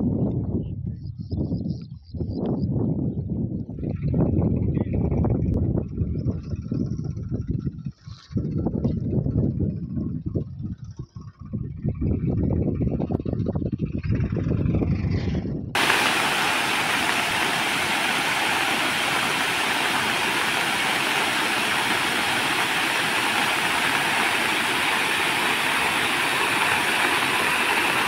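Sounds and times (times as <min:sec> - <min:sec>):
water rushing over spillway: 0:15.8 - 0:28.0.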